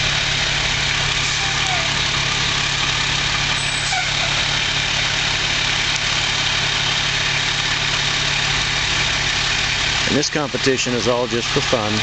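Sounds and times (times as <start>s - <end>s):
fire truck engine idling: 0.0s - 12.0s.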